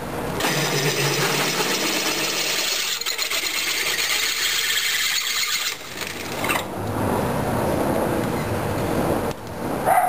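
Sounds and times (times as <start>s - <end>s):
drill bit grinding metal: 0.4s - 6.7s
drill press humming: 0.4s - 6.7s.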